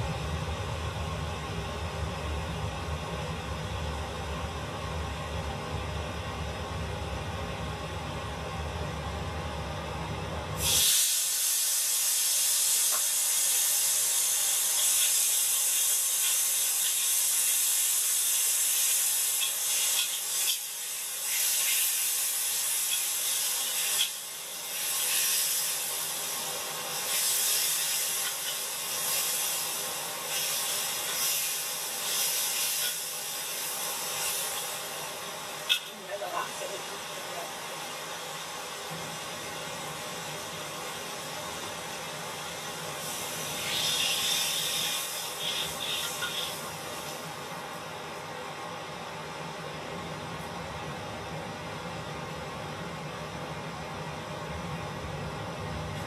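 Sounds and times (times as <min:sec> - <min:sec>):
tomatoes sizzling in hot oil: 0:10.6 - 0:48.0.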